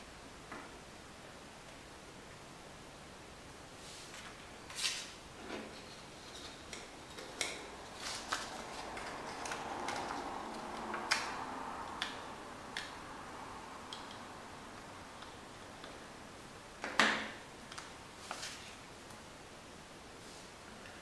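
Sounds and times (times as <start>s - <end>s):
paper card rustling: 4.1s - 5.2s, 8.0s - 10.9s.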